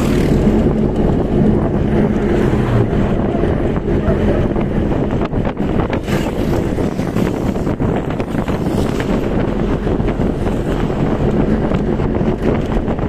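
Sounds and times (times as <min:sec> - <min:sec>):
road vehicle rumble: 0:00.0 - 0:13.0
wind buffeting microphone: 0:00.0 - 0:13.0.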